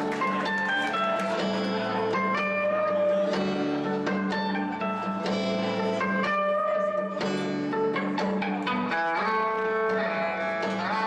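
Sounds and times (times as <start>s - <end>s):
plucked guitar notes: 0.0s - 11.0s.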